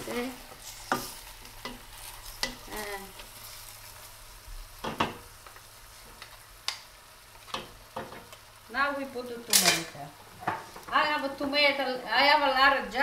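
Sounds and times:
chicken sizzling in a pan: 0.0 - 13.0
wooden spoon knocking on pan: 4.8 - 5.2, 7.5 - 8.3, 10.4 - 11.1.

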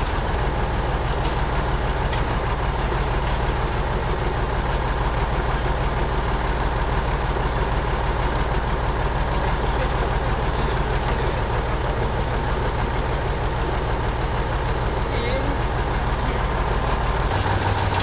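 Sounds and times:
hydraulic crane handling logs: 0.0 - 6.6
truck engine running: 0.0 - 18.0.

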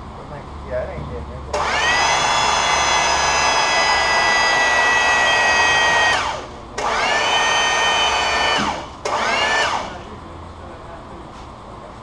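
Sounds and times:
hydraulic pump motor whining: 1.5 - 10.2.

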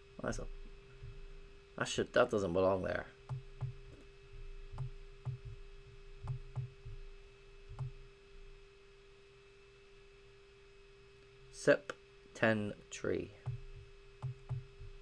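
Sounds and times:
steady hum: 0.0 - 15.0
computer mouse clicks: 6.2 - 6.8, 13.5 - 14.8.

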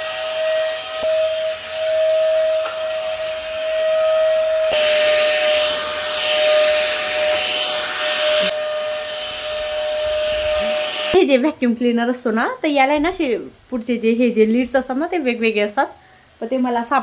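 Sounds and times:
cordless vacuum cleaner whine: 0.0 - 11.2.

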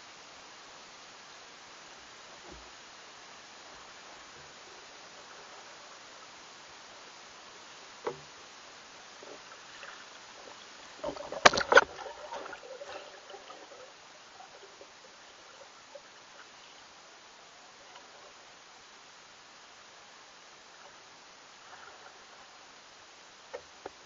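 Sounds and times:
faint crackling: 0.0 - 24.0
faint steady hiss: 0.0 - 24.0
knocks and clicks underwater: 8.0 - 8.3, 9.2 - 15.0.

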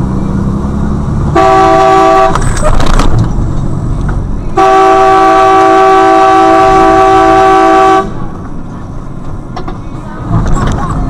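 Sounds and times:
engine and road rumble: 0.0 - 11.0
vehicle horn blast: 1.3 - 2.5, 4.6 - 8.2.

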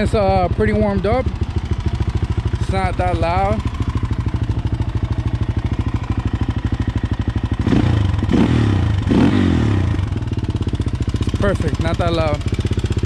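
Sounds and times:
quad bike engine idling: 0.0 - 13.0
engine revving blips: 7.6 - 10.2.

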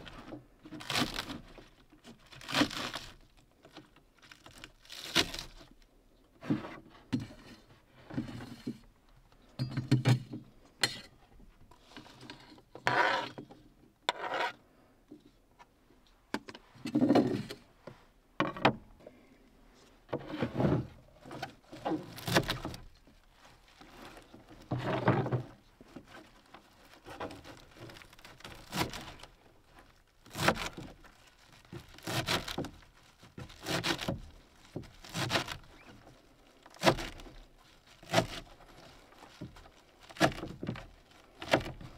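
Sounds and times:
knife scraping cutting mat: 12.9 - 13.4, 14.1 - 14.6
leaves rustling: 26.0 - 41.9.

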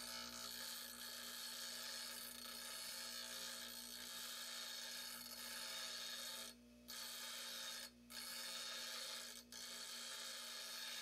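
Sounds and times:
grinder motor hum: 0.0 - 11.0
grinder wheel rasping on steel: 0.0 - 11.0.

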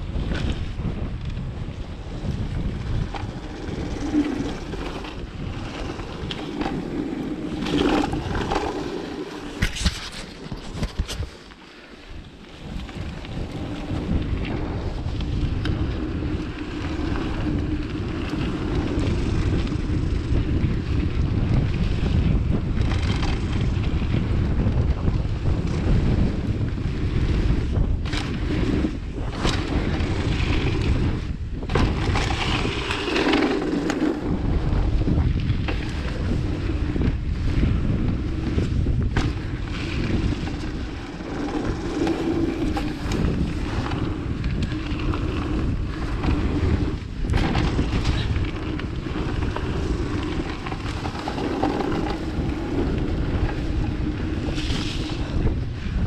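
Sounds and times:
bike tyres rolling on dirt: 0.0 - 56.0
wind buffeting microphone: 0.0 - 56.0
bike knocks and rattles: 9.4 - 11.4, 13.9 - 56.0.

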